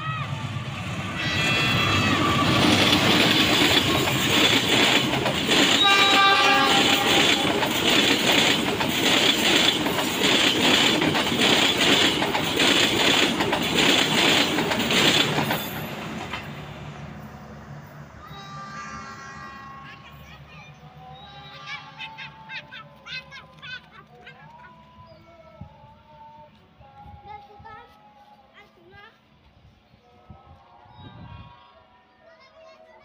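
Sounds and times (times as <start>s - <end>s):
passenger train passing: 0.0s - 25.0s
wheels clattering over rail joints: 2.4s - 16.7s
locomotive horn: 5.5s - 7.9s, 18.4s - 20.3s.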